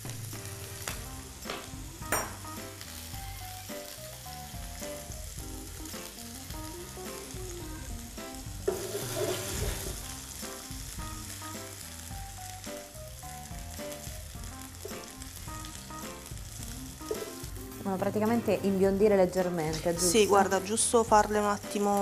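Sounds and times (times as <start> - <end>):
vegetables sizzling in hot oil: 0.0 - 22.0
fork turning food in pan: 8.7 - 10.0.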